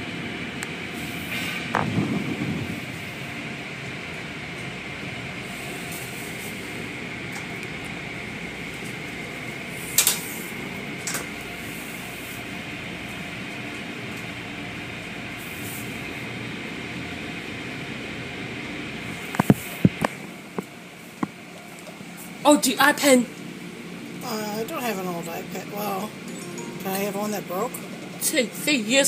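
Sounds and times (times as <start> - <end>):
car wash machinery and water: 0.0 - 29.0.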